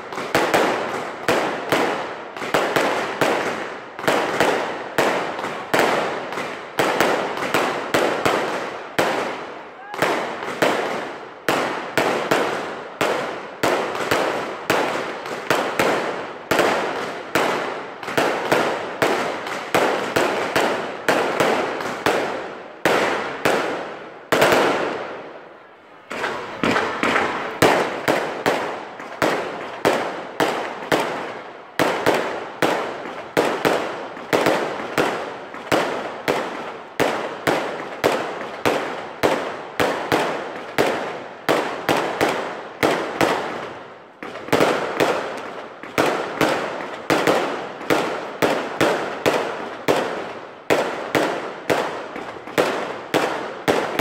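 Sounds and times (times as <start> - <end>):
fireworks shells bursting: 26.0 - 29.8.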